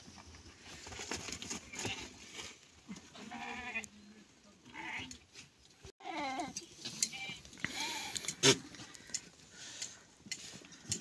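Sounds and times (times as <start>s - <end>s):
goats bleating: 3.1s - 3.9s, 4.7s - 5.2s.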